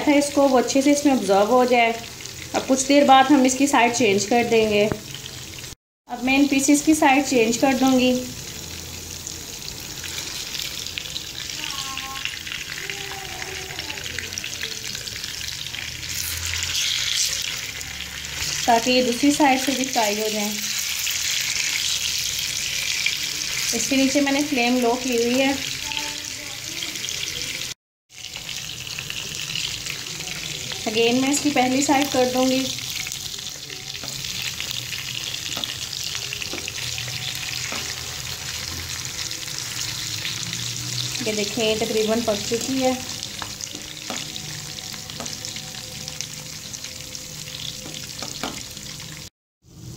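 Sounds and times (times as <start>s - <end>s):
oil sizzling and crackling: 0.0s - 49.9s
fork knocking on pan: 35.5s - 35.8s, 47.8s - 48.7s.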